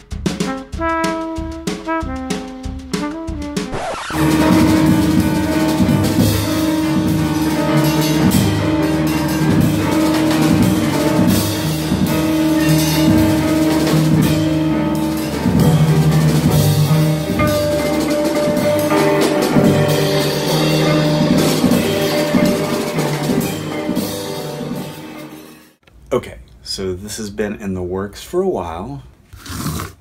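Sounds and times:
drum kit with ride cymbal: 0.0s - 25.8s
grand piano: 4.1s - 25.8s.

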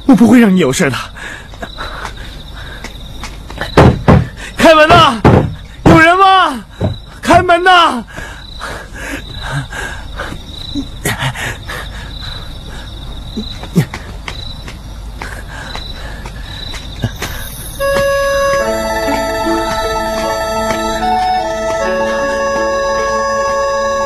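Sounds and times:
crickets chirring: 0.0s - 24.0s
electronic organ music: 17.8s - 24.0s.

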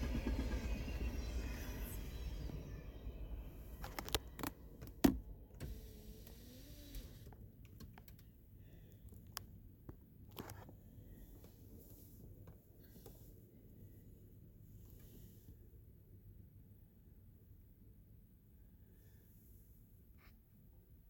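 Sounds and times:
low rumble: 0.0s - 6.2s.

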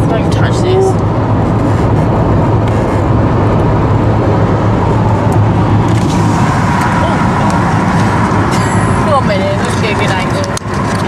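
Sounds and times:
car engine and tyre noise: 0.0s - 11.0s
low drone: 0.0s - 11.0s.

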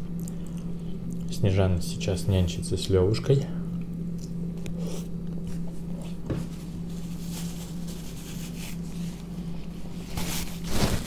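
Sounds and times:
steady low hum: 0.0s - 11.0s
person chewing: 3.8s - 6.2s.

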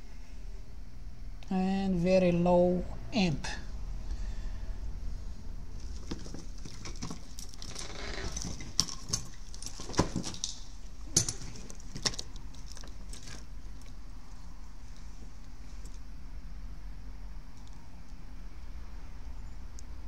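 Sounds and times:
steady low hum: 0.0s - 20.0s
rustle of wires: 5.7s - 16.1s.

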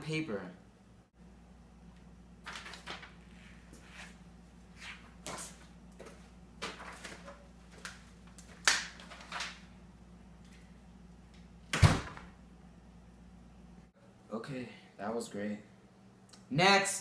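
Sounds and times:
door shutting with a thud: 11.7s - 12.3s.

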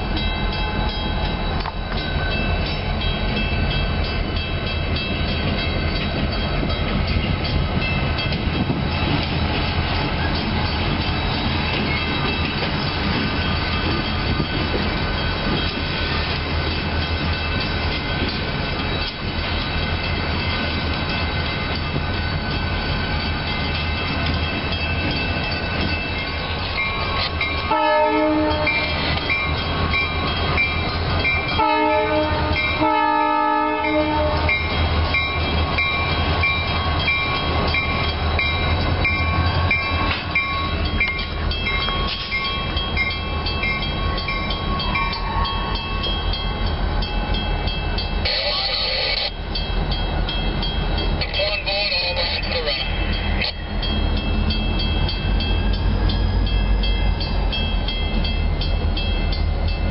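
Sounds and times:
crossing bell ringing: 0.0s - 59.9s
diesel train rumbling: 0.0s - 59.9s
train air horn blasts: 27.7s - 29.0s, 31.6s - 34.6s.

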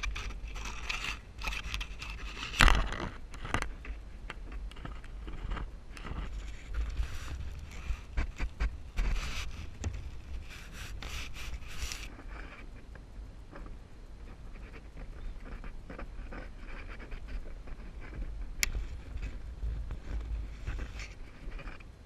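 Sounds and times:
wire rustling and scraping: 0.0s - 21.9s.

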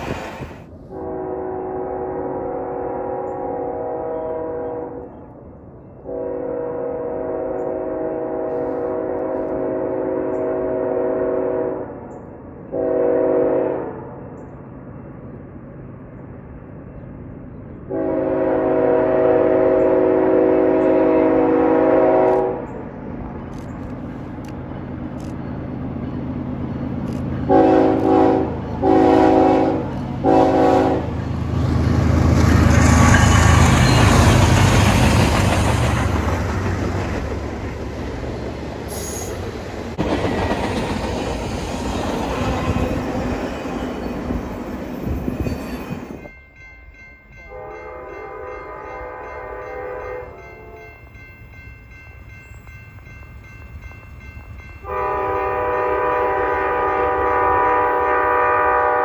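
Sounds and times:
rolling clatter of rail cars: 0.0s - 1.3s, 2.1s - 59.0s
train air horn: 0.0s - 5.2s, 6.0s - 12.0s, 12.7s - 14.2s, 17.9s - 22.7s, 27.5s - 31.2s, 42.3s - 43.3s, 47.5s - 51.0s, 54.8s - 59.0s
diesel locomotives passing: 0.0s - 59.0s.

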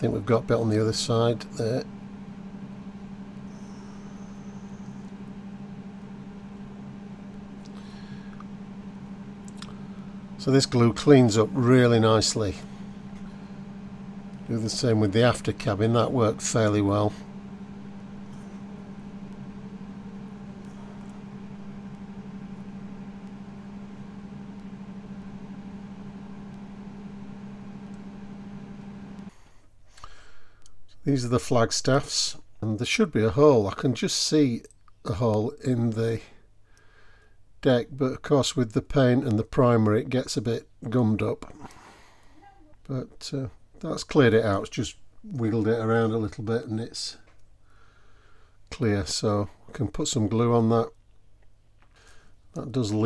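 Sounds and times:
faint high whine: 0.0s - 29.4s
low mechanical hum: 0.0s - 53.0s.

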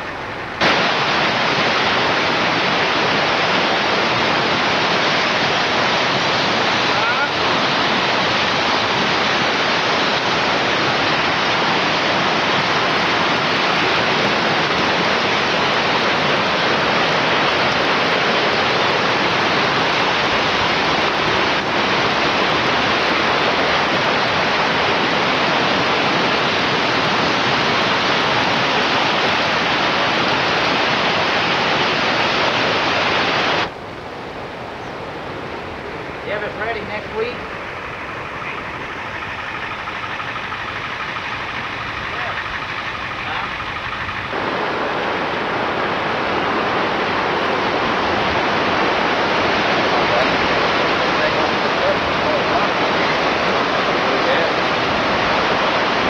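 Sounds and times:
floodwater rushing in rapids: 0.0s - 56.0s.

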